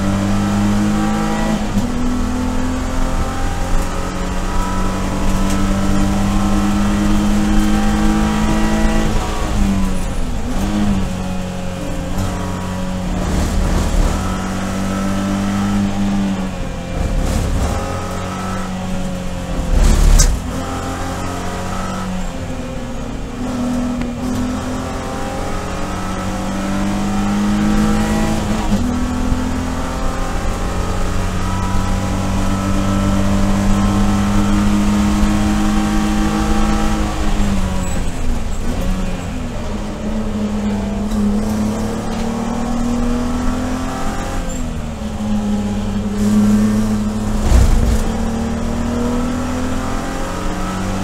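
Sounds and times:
race car engine under throttle: 0.0s - 51.0s
loud thump: 47.2s - 48.9s.

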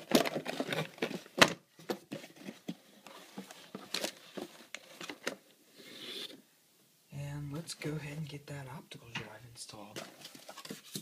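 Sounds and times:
cardboard and paper rustling: 0.0s - 5.4s, 9.9s - 11.0s.

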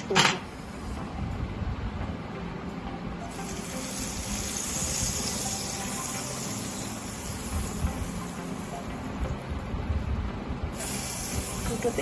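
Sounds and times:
butter sizzling on hot plates: 3.3s - 9.1s, 10.7s - 12.0s.

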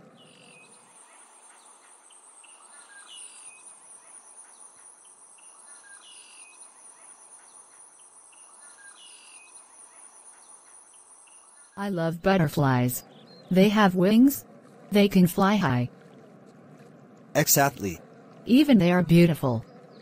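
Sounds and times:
high insect hum: 0.0s - 11.8s
faint bird chirps: 0.0s - 11.9s.

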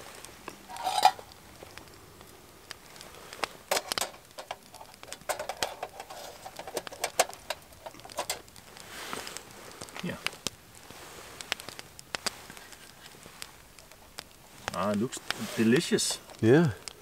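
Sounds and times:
wire grill rack clicking and scraping: 0.7s - 1.4s, 3.7s - 8.5s.

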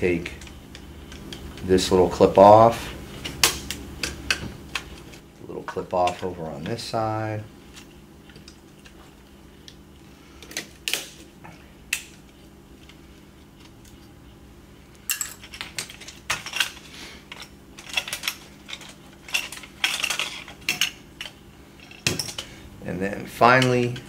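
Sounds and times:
plastic parts clattering: 15.1s - 20.9s.

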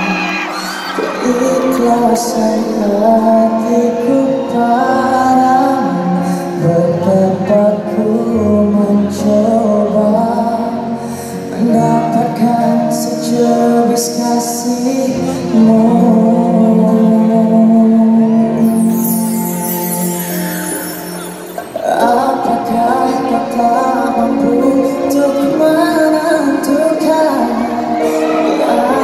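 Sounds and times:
man singing slow melody: 0.0s - 29.0s
band accompaniment: 18.2s - 29.0s.

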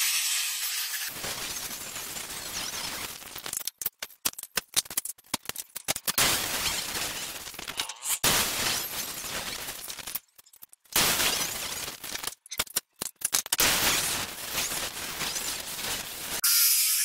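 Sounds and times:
angle grinder cutting steel: 0.0s - 1.1s, 16.4s - 17.0s.

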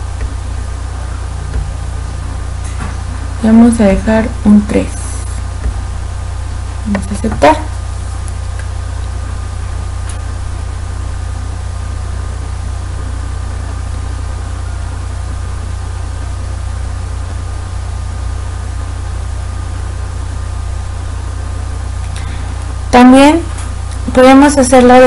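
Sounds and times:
low hum with hiss: 0.0s - 25.0s.

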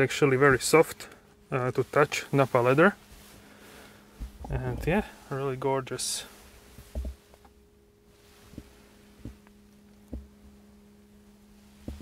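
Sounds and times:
steady low hum: 0.0s - 12.0s
soft low thumps: 4.1s - 5.2s, 6.7s - 7.4s, 8.4s - 10.8s, 11.6s - 12.0s.

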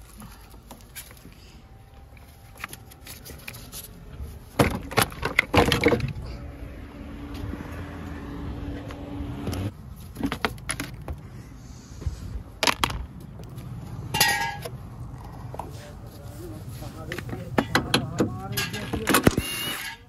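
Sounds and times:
tools and parts clanking: 4.5s - 6.5s, 10.0s - 11.2s, 12.6s - 15.7s, 17.1s - 20.0s
ringing metal clank: 14.1s - 14.7s.

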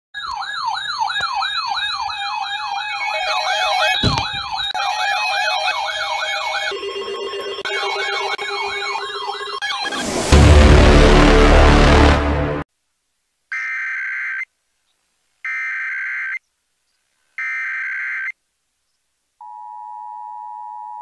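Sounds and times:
electronic siren yelping: 0.2s - 10.4s
steady siren tone: 0.2s - 12.6s.

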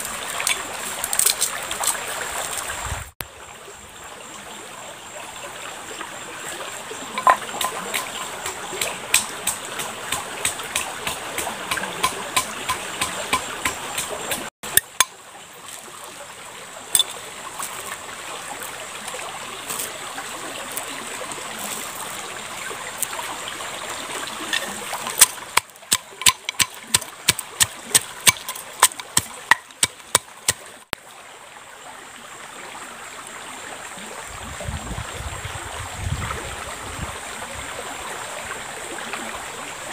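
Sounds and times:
stream water flowing: 0.0s - 39.9s
pestle pounding in mortar: 25.1s - 30.6s.

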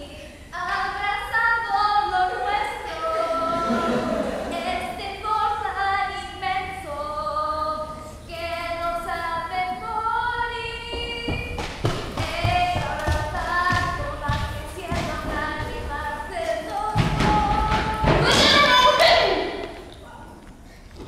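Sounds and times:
girl singing slow melody: 0.0s - 11.6s, 12.2s - 19.7s
dull thumps: 10.8s - 18.9s.

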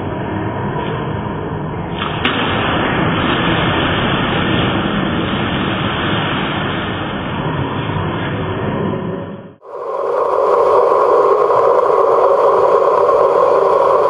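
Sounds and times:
swimmer splashing water: 2.0s - 7.9s.

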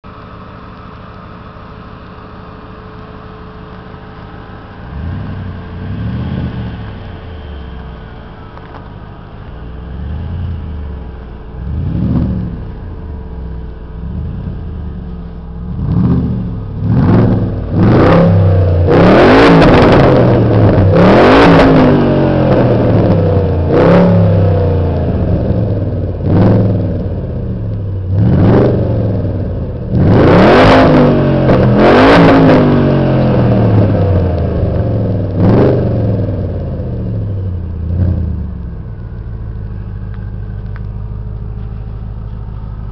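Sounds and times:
car engine idling and revving: 0.0s - 42.9s.

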